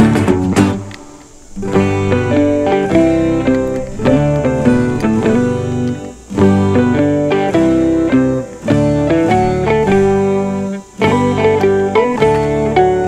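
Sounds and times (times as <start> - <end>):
plucked guitar music: 0.0 - 13.0.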